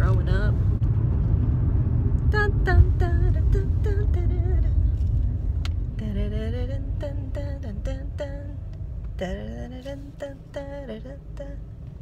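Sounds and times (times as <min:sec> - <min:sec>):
car driving rumble from inside: 0:00.0 - 0:12.0
woman singing wordless tune: 0:02.3 - 0:04.8, 0:05.9 - 0:11.7.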